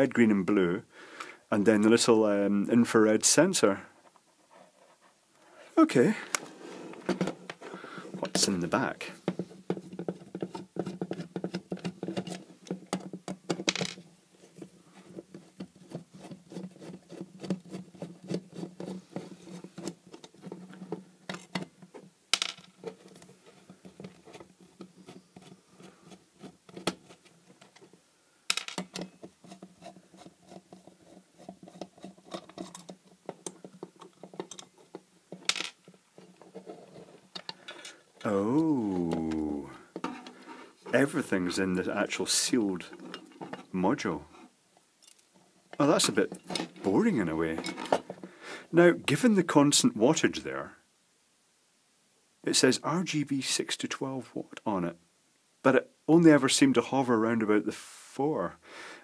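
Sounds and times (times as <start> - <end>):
screws set down clicking: 28.5 - 29.1
screwdriver clicking and scraping metal: 28.7 - 35.5.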